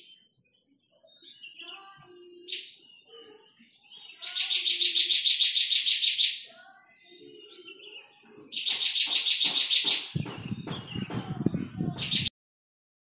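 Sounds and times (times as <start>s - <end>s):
faint bird chirps: 0.0s - 12.3s
bird rapid high calls: 8.4s - 12.3s.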